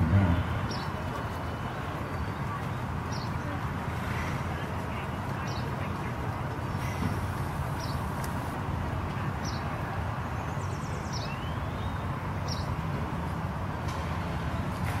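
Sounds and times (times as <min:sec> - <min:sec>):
outdoor background rumble: 0:00.0 - 0:15.0
bird chirping: 0:10.4 - 0:12.7.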